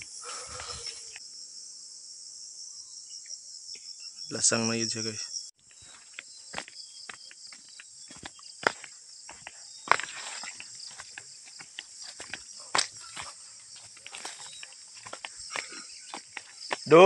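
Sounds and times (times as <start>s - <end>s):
high-pitched insect chorus: 0.0s - 17.0s
footsteps on dirt path: 5.6s - 17.0s.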